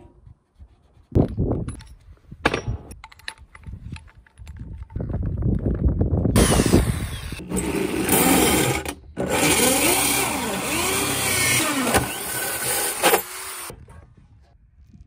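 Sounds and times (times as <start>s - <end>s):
electric drill motor whine: 6.4s - 13.7s.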